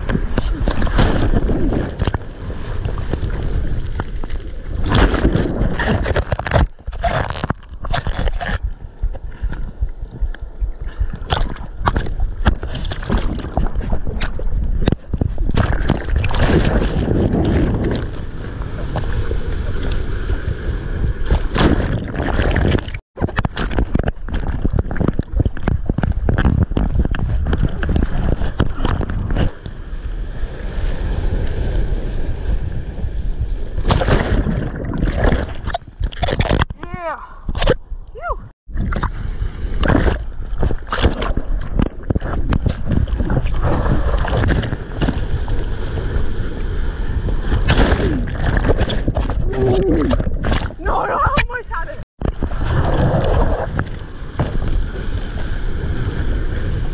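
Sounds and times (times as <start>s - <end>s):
wind buffeting microphone: 0.0s - 7.2s, 7.8s - 56.9s
water rushing and splashing: 11.1s - 33.0s, 38.8s - 56.9s.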